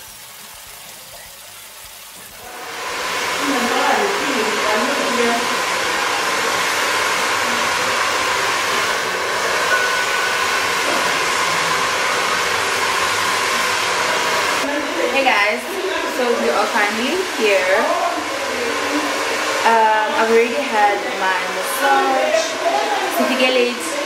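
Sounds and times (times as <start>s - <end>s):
hair dryer running: 2.4s - 24.0s
woman talking: 3.4s - 5.6s, 14.6s - 24.0s.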